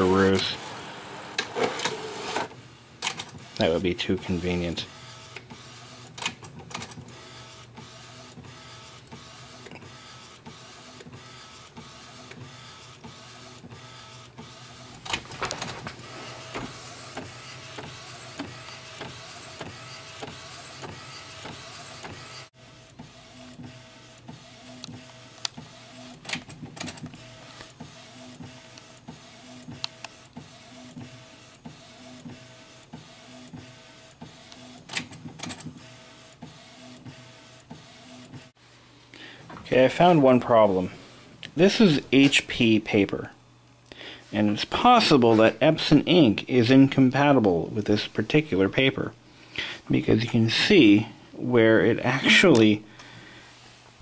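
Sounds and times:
printer running hum: 0:00.0 - 0:38.7
printer head clicks and whirs: 0:00.2 - 0:04.4, 0:05.0 - 0:38.5.

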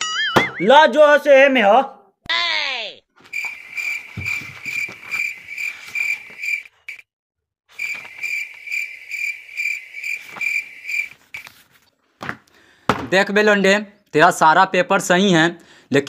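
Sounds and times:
cricket chirping: 0:03.3 - 0:07.0, 0:07.7 - 0:11.2.

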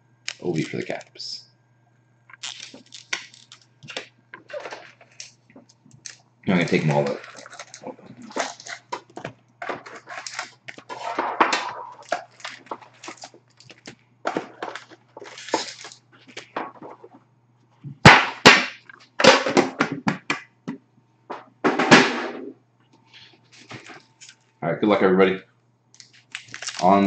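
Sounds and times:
foil packs crinkling: 0:02.3 - 0:17.2, 0:26.0 - 0:27.0.

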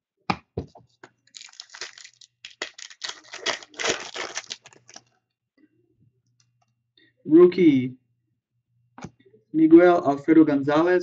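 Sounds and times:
foil card pack crinkling: 0:01.3 - 0:05.1.

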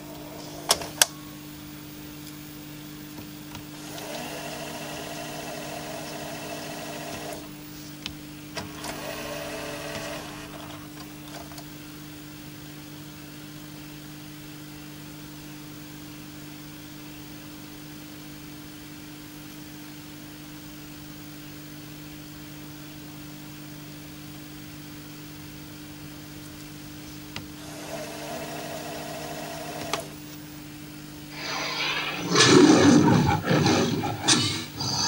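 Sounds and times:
video recorder low hum: 0:00.0 - 0:12.9, 0:25.4 - 0:35.0
video recorder mechanism whirr: 0:03.8 - 0:07.5, 0:08.6 - 0:11.6, 0:27.6 - 0:30.2.

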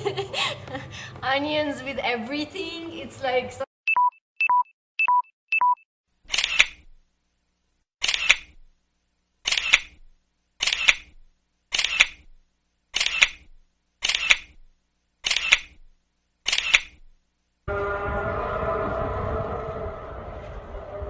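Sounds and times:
camera shutter clicks: 0:06.3 - 0:06.8, 0:08.0 - 0:08.5, 0:09.5 - 0:10.0, 0:10.6 - 0:11.1, 0:11.7 - 0:12.2, 0:13.0 - 0:13.4, 0:14.0 - 0:14.6, 0:15.2 - 0:15.8, 0:16.5 - 0:17.0.

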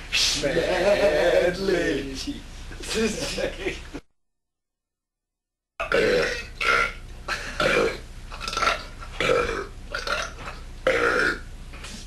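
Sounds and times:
person burping: 0:05.8 - 0:11.4.

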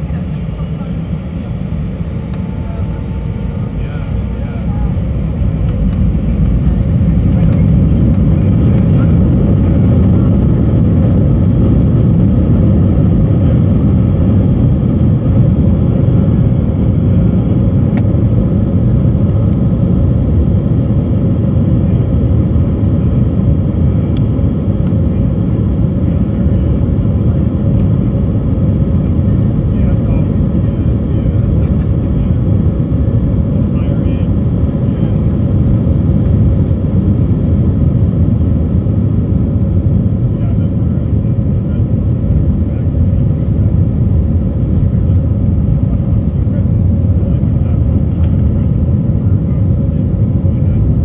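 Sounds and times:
wheels rumbling on runway: 0:00.0 - 0:18.4
jet engines at takeoff thrust: 0:00.0 - 0:51.0.

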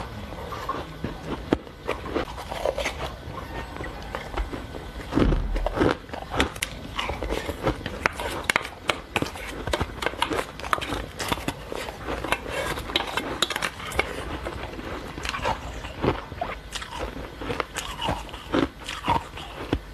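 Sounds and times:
chewing crushed ice: 0:00.0 - 0:19.9
loud thump: 0:05.2 - 0:05.9.

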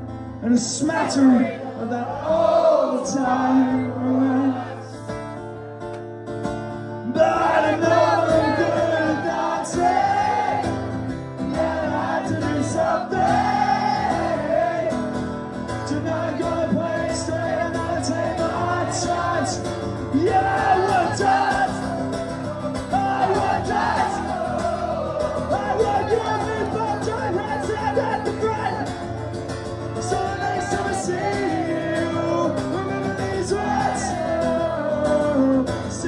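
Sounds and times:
acoustic guitar: 0:00.0 - 0:36.0
man singing: 0:00.4 - 0:05.0, 0:07.0 - 0:10.7, 0:11.3 - 0:15.0, 0:15.6 - 0:36.0
audience shouting and singing along: 0:00.7 - 0:05.2, 0:07.0 - 0:36.0.

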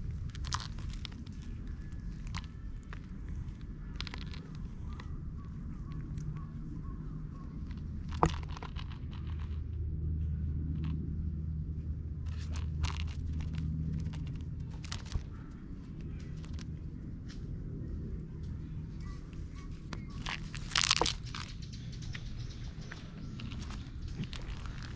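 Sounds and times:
low steady hum: 0:00.0 - 0:24.9.

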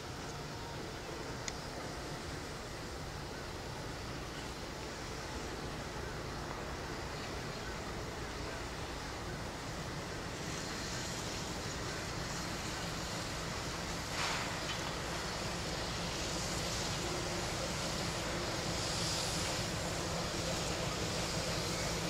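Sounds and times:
train engine rumble: 0:00.0 - 0:22.0
short hiss: 0:13.9 - 0:15.4.

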